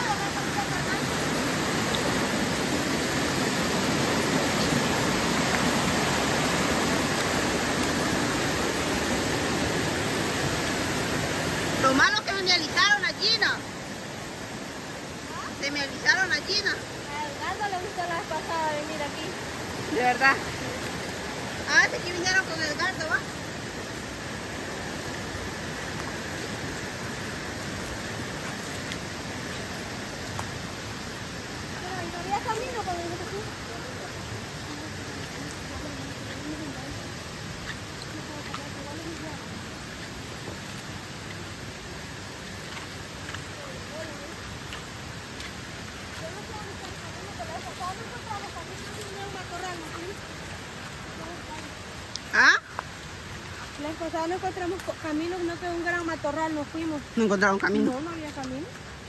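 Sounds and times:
stream rushing over rocks: 0.0s - 59.0s.

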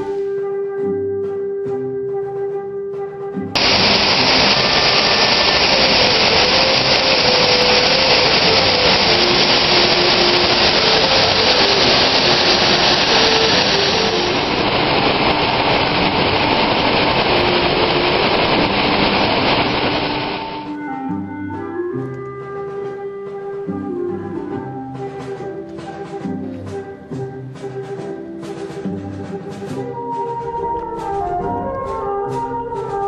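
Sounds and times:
waterfall roaring: 3.6s - 20.8s.

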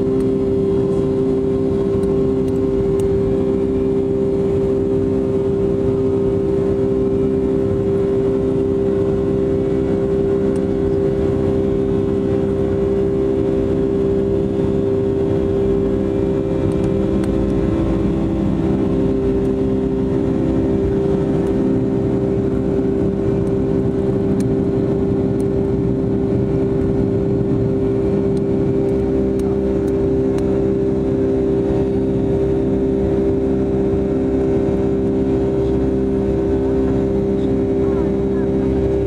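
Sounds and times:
jet engines roaring: 0.0s - 39.0s.

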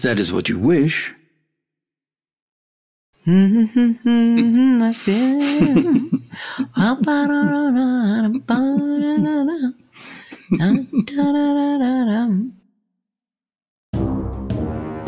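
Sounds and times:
person humming a melody: 3.2s - 9.8s, 10.4s - 12.6s.

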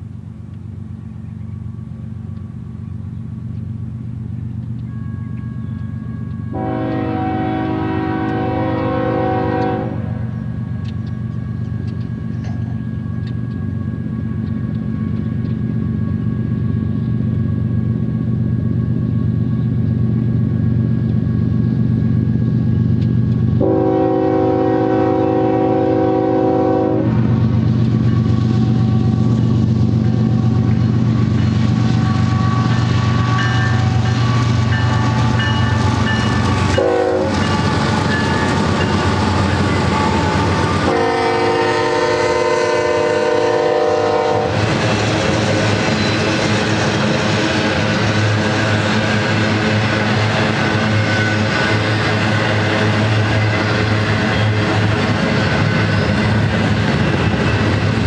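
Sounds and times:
diesel locomotive engine drone: 0.0s - 58.0s
locomotive air horn: 6.5s - 10.4s, 23.6s - 27.3s, 36.7s - 38.5s, 39.6s - 44.6s.

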